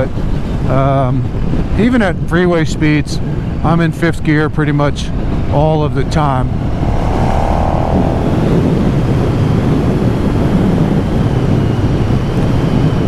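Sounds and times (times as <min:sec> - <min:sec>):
wind rush on microphone: 0:04.6 - 0:13.0.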